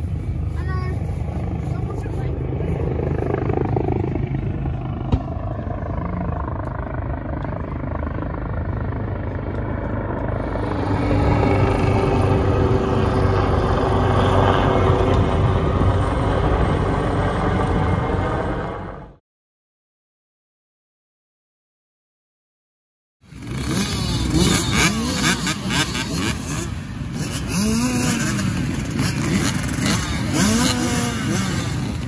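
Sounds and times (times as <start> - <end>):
helicopter rotor and engine rumble: 0.0 - 19.2.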